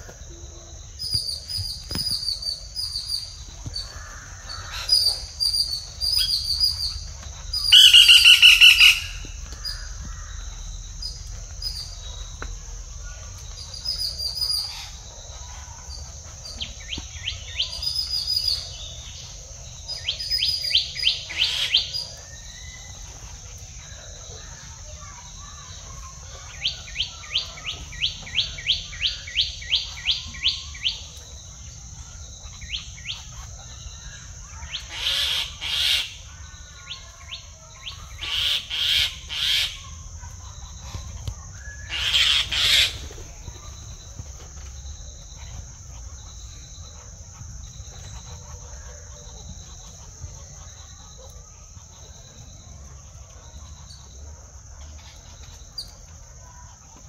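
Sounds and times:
high insect drone: 0:00.0 - 0:57.0.

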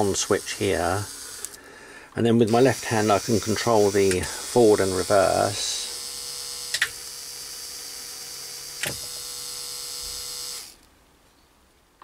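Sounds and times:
gearmotor whining: 0:00.0 - 0:01.6, 0:02.4 - 0:10.8
sharp clicks: 0:06.7 - 0:07.0, 0:08.8 - 0:09.1.

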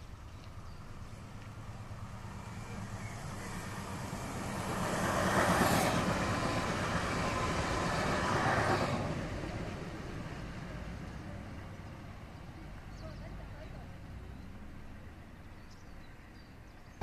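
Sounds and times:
electric train passing: 0:00.0 - 0:12.9.

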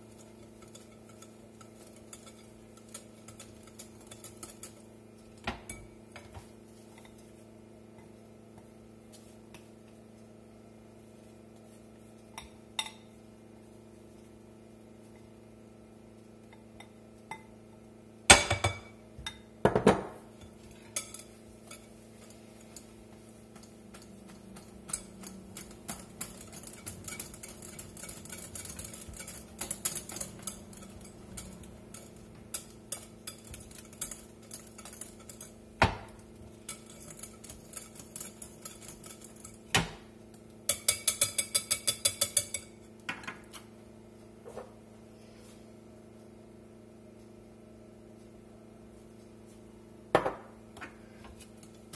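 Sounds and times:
whisk clinking in glass bowl: 0:00.0 - 0:07.4, 0:20.3 - 0:39.8, 0:40.4 - 0:43.0.

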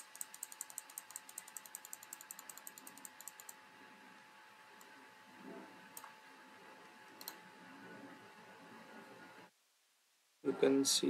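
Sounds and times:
rapid light clicks: 0:00.0 - 0:03.6
faint steady hum: 0:00.0 - 0:11.0.

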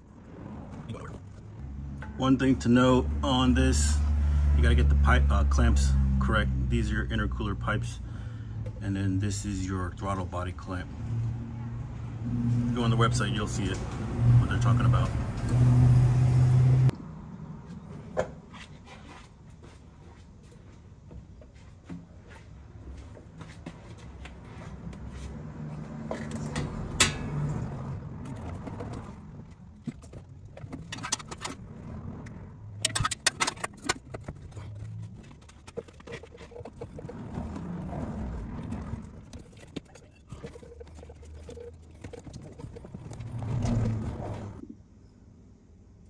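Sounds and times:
rubber hose rubbing and scraping: 0:18.4 - 0:26.6, 0:27.5 - 0:44.6.

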